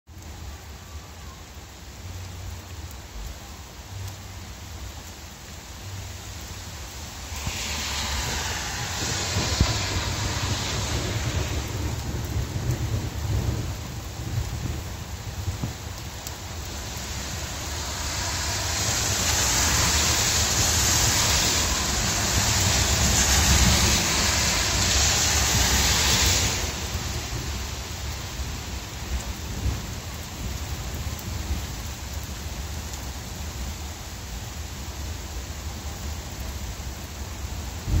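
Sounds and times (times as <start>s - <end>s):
heavy rain on pavement: 0.0s - 38.0s
low rumble: 4.0s - 27.9s, 37.8s - 38.0s.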